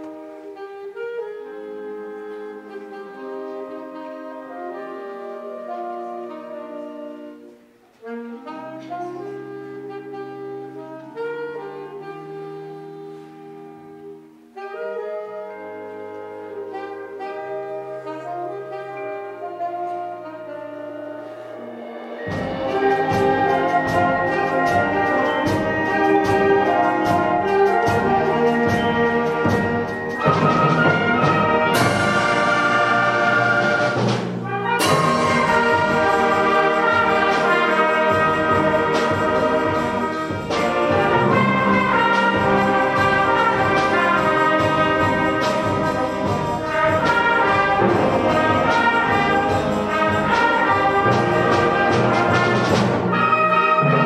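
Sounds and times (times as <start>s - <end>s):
orchestral brass music: 0.0s - 54.0s
cymbal swell: 21.1s - 26.4s
percussion strikes: 21.1s - 54.0s.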